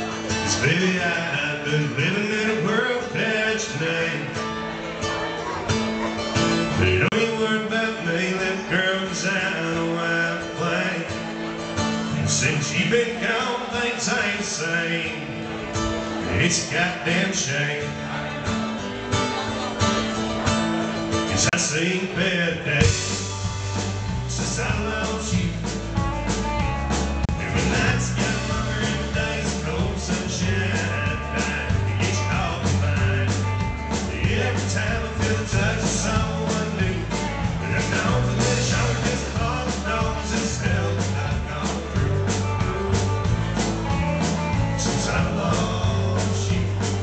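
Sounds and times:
live band playing: 0.0 - 47.0
drums keeping steady beat: 18.4 - 47.0.

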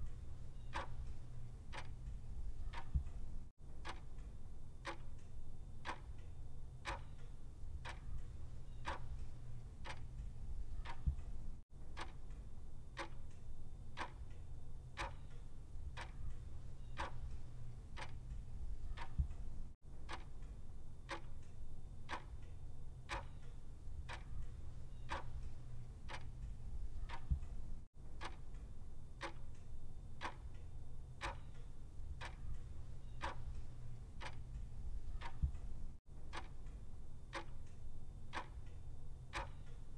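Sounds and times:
clock ticking: 0.0 - 12.4, 13.0 - 13.4, 14.0 - 14.4, 15.0 - 21.5, 22.1 - 22.5, 23.1 - 30.6, 31.2 - 39.8
low steady hum: 0.0 - 39.9.

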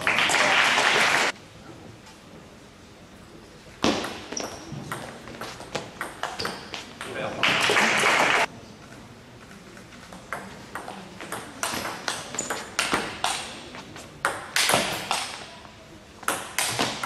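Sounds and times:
table tennis ball hits: 3.8 - 8.5, 10.3 - 15.5, 16.2 - 17.0.

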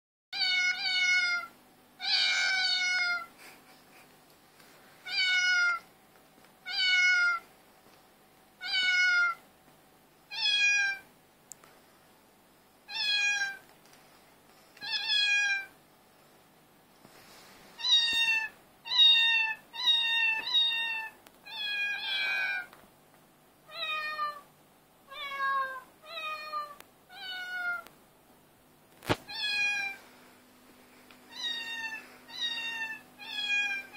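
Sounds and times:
cat meowing: 0.4 - 3.3, 5.0 - 5.9, 6.6 - 7.4, 8.6 - 9.4, 10.3 - 11.0, 12.9 - 13.6, 14.8 - 15.7, 17.8 - 22.7, 23.7 - 24.5, 25.1 - 27.9, 29.3 - 30.0, 31.3 - 33.9.

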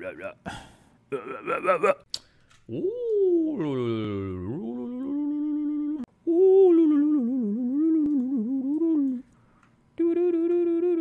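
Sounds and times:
man humming: 2.7 - 9.3, 10.0 - 11.0.

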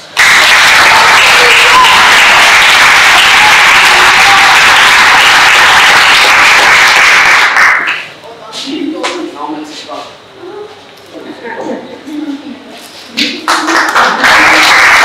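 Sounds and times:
audience applauding: 0.0 - 8.1, 13.4 - 15.0.

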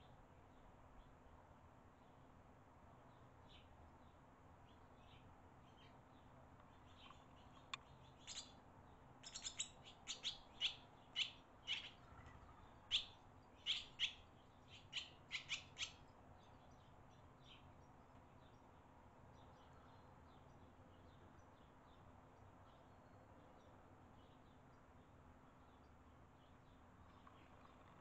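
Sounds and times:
swallows chirping: 6.7 - 8.6, 9.2 - 17.7.

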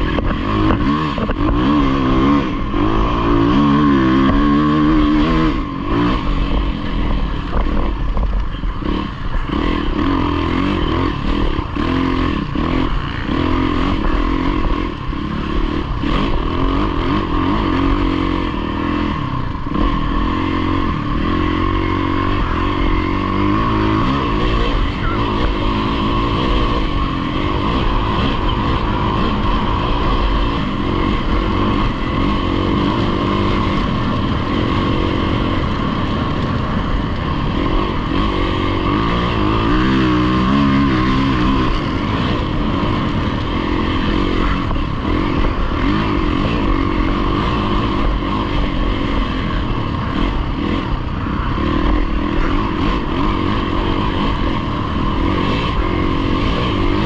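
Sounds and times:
dirt bike engine running hard: 0.0 - 57.0
rushing noise: 0.0 - 57.0.

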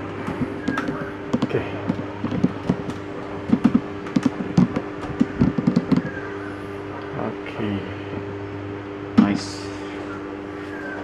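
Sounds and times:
steady low hum: 0.0 - 11.0
irregular clicks and knocks: 0.3 - 6.1.

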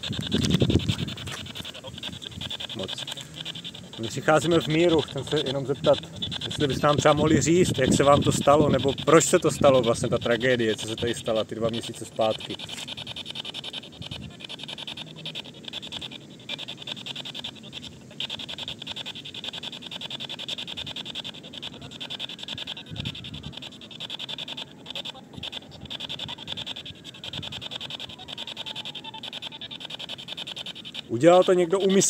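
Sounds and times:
radio scanner static sweeping: 0.0 - 32.0.

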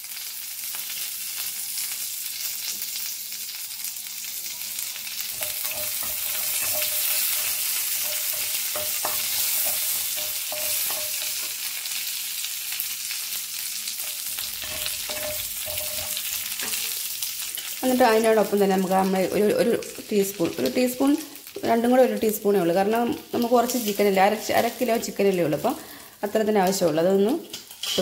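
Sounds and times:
leaves sizzling in hot oil: 0.0 - 28.0
wooden spatula scraping pan: 5.4 - 11.5, 14.0 - 17.0.

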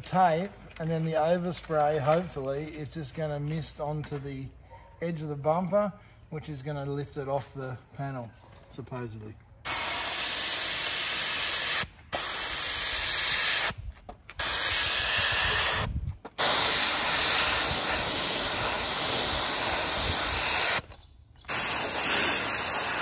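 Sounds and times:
paint spray gun hissing: 9.7 - 13.8, 14.4 - 23.0.

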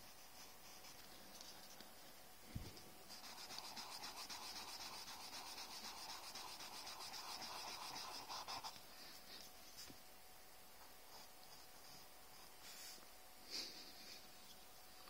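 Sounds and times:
cotton swab rubbing on paper: 3.1 - 8.7.

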